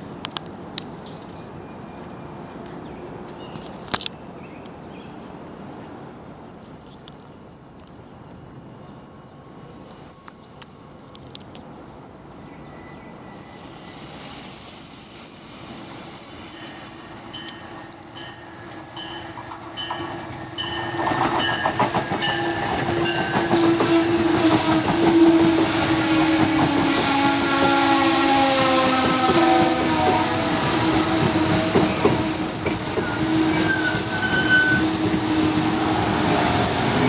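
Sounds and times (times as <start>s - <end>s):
wheel squeal: 12.3s - 14.2s, 19.9s - 36.7s
train wheels clattering on rails: 16.4s - 37.0s.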